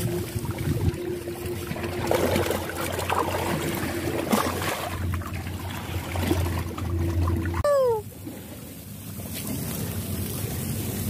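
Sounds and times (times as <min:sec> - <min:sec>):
steady low hum: 0:00.0 - 0:11.0
water trickling and splashing: 0:00.0 - 0:11.0.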